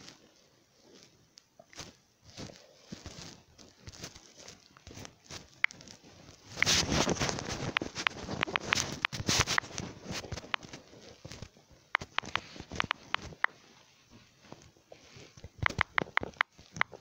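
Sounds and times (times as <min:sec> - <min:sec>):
rustling handling noise: 0:00.0 - 0:17.0
fingers tapping on touchscreen: 0:07.6 - 0:09.7, 0:10.3 - 0:10.8, 0:11.9 - 0:13.6, 0:15.4 - 0:17.0.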